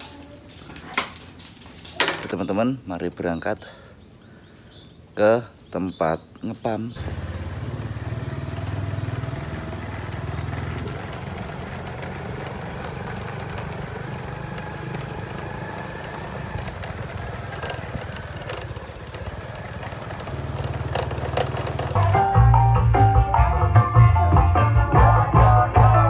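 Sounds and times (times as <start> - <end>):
motorcycle engine running: 7.0 - 23.6.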